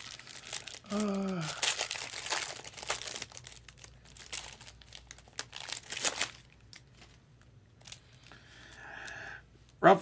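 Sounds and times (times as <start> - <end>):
wrapper tearing and crinkling: 0.0 - 7.2.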